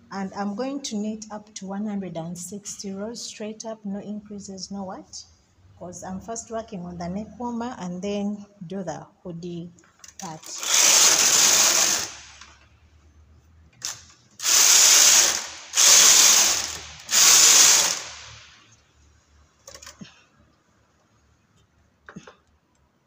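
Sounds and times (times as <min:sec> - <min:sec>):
knitting machine carriage rasping: 0:10.2 - 0:12.5, 0:13.8 - 0:18.2.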